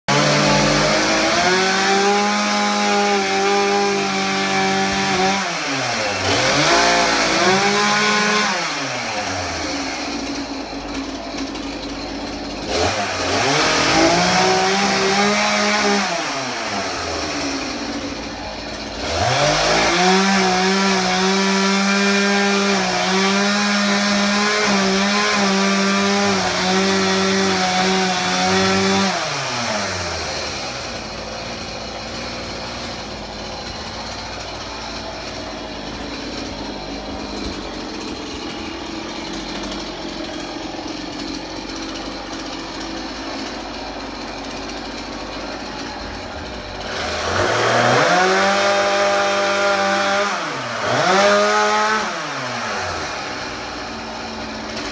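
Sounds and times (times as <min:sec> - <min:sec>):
chainsaw cutting: 0:00.0 - 0:54.9.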